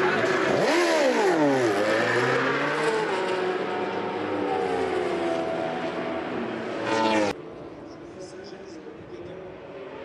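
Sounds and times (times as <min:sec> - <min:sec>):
racing motorcycle engine: 0:00.0 - 0:07.4.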